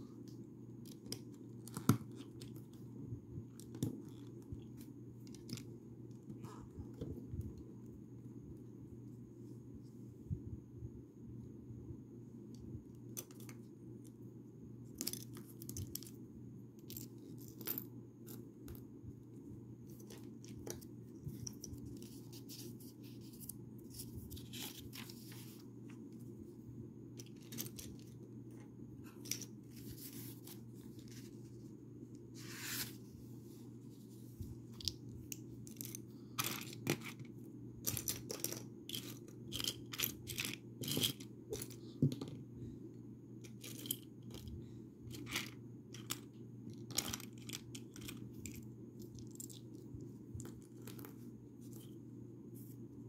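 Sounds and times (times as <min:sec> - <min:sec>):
steady low hum: 0:00.0 - 0:53.0
scrape or rustle: 0:22.0 - 0:25.7, 0:29.7 - 0:31.6, 0:32.3 - 0:34.4.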